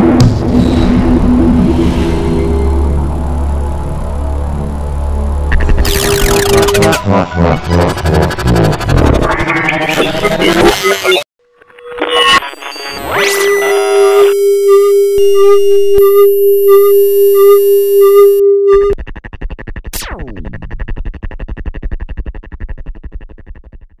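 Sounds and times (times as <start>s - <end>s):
falling synth sweep: 1.6s - 10.6s
fast pulsing synth texture: 4.7s - 11.2s
synthesizer held tone with chimes: 12.2s - 19.0s.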